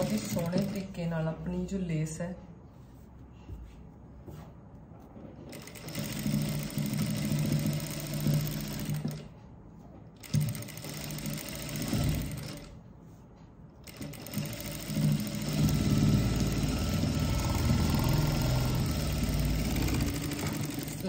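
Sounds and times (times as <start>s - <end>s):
sewing machine stitching: 0.0s - 1.0s, 5.4s - 9.3s, 10.2s - 12.8s, 13.8s - 21.0s.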